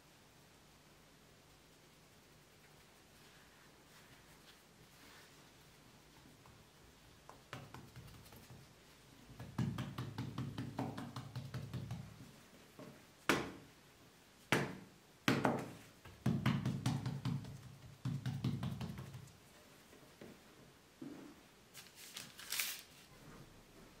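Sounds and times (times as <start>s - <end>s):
hands patting dough on wood: 6.4s - 13.7s, 14.4s - 19.6s
dough slapping on a board: 7.3s - 12.2s, 12.8s - 13.7s, 14.5s - 19.4s.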